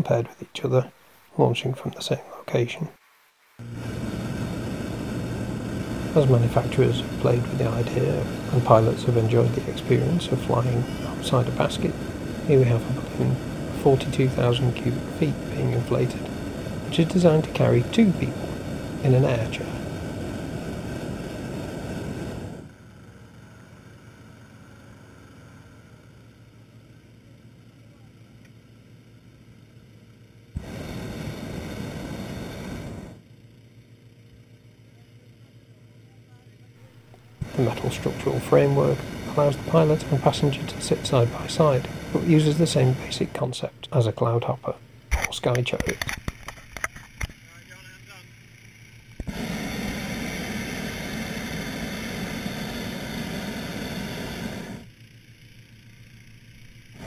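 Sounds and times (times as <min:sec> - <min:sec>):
fan engine drone: 0:00.0 - 0:02.9, 0:03.5 - 0:57.0
propane burner blast: 0:03.6 - 0:25.6, 0:30.5 - 0:33.3, 0:36.8 - 0:57.0
burner ignition click: 0:45.1 - 0:47.4.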